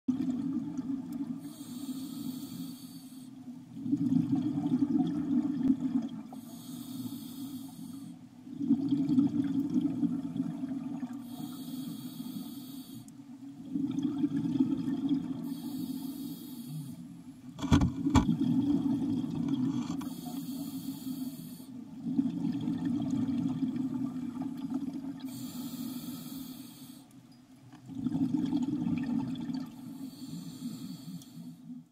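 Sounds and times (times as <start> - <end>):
exhaled bubbles rumbling: 0.1 - 1.4, 3.7 - 6.3, 8.5 - 11.2, 13.6 - 15.6, 17.6 - 20.0, 21.9 - 25.3, 27.8 - 29.8
diver inhaling through regulator: 1.4 - 3.3, 6.4 - 8.2, 11.2 - 13.1, 15.4 - 17.0, 19.9 - 21.8, 25.3 - 27.1, 29.9 - 31.7.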